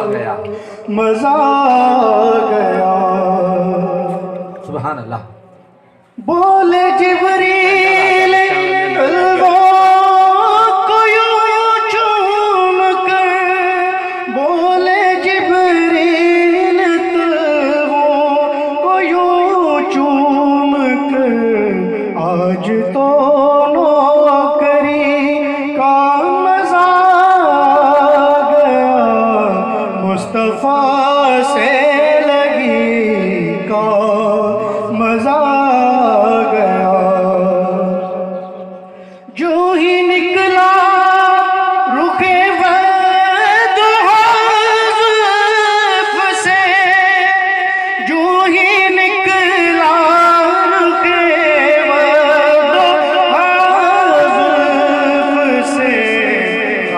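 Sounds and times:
man singing over a pa: 0:00.0 - 0:04.7, 0:06.1 - 0:56.9.

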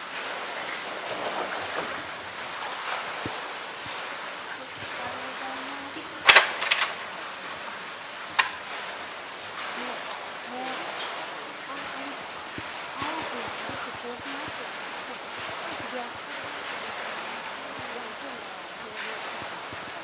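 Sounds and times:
pool water: 0:00.0 - 0:20.0
steady high hiss: 0:00.0 - 0:20.0
faint voices: 0:00.4 - 0:20.0.

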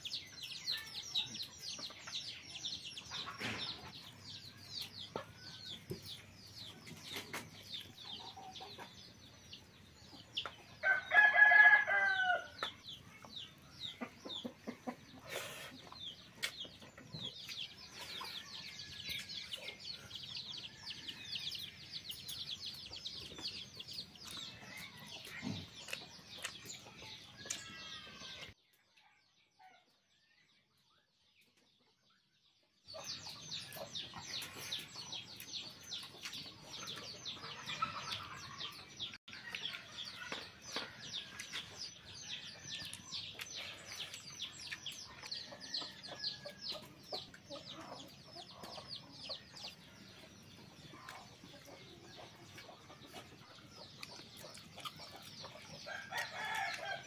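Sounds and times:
small birds chirping: 0:00.0 - 0:57.0
rooster crowing: 0:10.8 - 0:12.6, 0:55.9 - 0:57.0
hens clucking: 0:12.6 - 0:18.4, 0:36.0 - 0:39.1.

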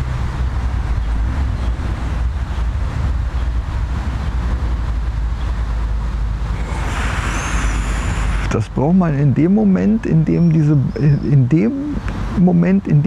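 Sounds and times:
wind buffeting microphone: 0:00.0 - 0:12.5.

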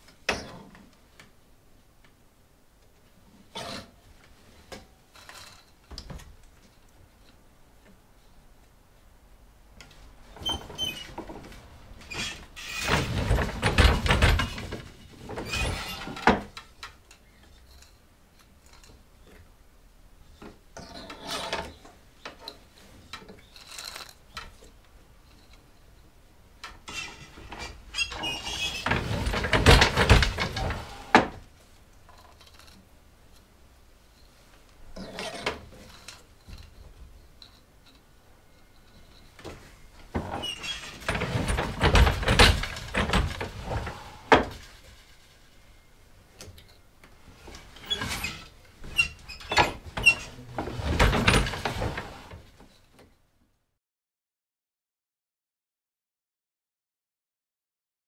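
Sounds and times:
wooden loom knocking and creaking: 0:09.8 - 0:17.8, 0:20.4 - 0:25.7, 0:26.6 - 0:31.5, 0:38.6 - 0:45.5, 0:46.4 - 0:53.1.

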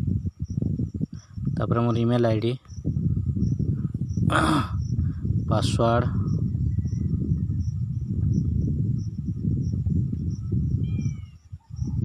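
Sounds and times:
cricket chirping: 0:00.0 - 0:12.0.

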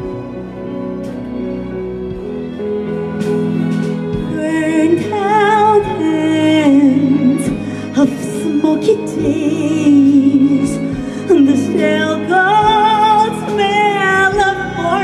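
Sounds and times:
symphony orchestra playing ballad: 0:00.0 - 0:15.0
woman singing with vibrato: 0:04.3 - 0:15.0.

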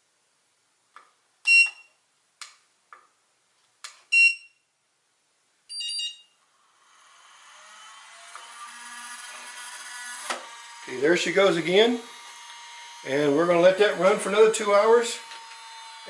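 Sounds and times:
charger beeps: 0:04.1 - 0:04.6, 0:05.7 - 0:06.3.

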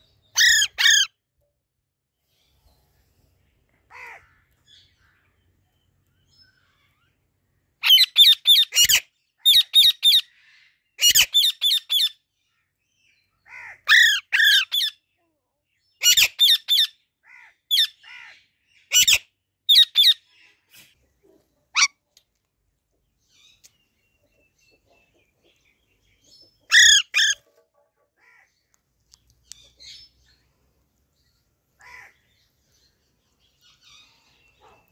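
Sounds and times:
parakeet squawking: 0:00.4 - 0:01.1, 0:13.6 - 0:14.9, 0:26.7 - 0:27.4.

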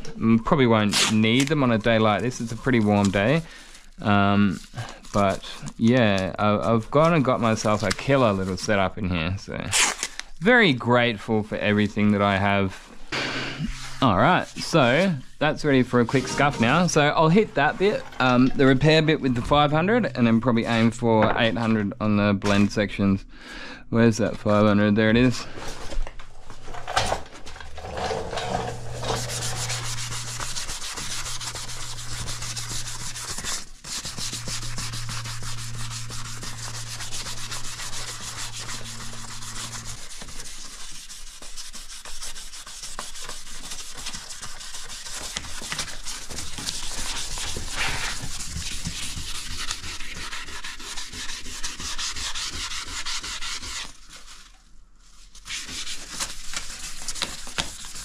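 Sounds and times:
hand sanding with sandpaper: 0:01.0 - 0:05.8, 0:28.0 - 0:58.0
low steady hum: 0:13.2 - 0:40.5.

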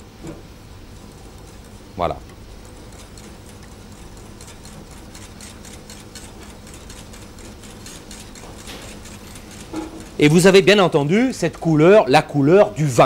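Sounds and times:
whisk clicking against metal pan: 0:01.0 - 0:12.1.

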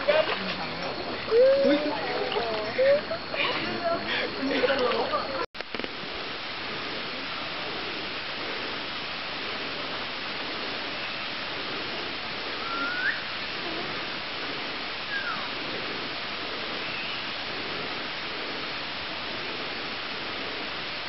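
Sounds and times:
steady rushing hiss: 0:00.0 - 0:21.0
short whistled notes: 0:12.6 - 0:13.3.

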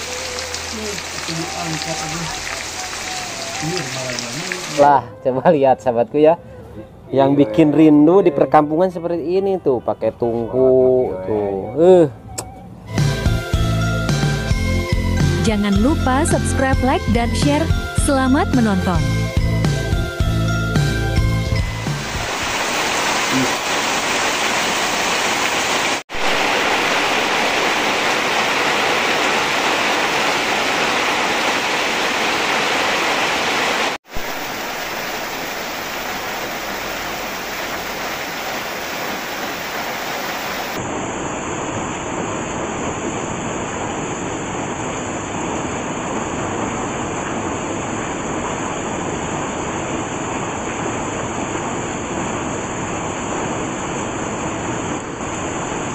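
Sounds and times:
water dripping off roof: 0:00.0 - 0:04.8
rain falling: 0:00.0 - 0:04.9, 0:21.5 - 0:55.9.

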